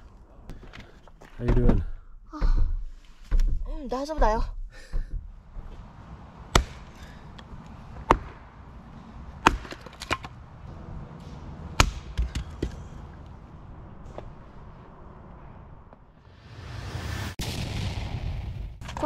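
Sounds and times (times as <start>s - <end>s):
axe blade striking wood: 6.5s - 7.1s, 8.0s - 8.4s, 9.4s - 10.4s, 11.8s - 12.8s.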